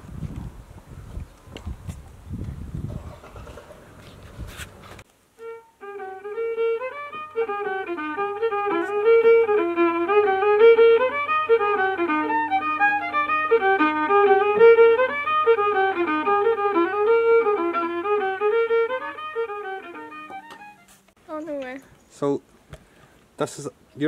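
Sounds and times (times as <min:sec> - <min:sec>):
fiddle tune: 0:05.4 - 0:21.6.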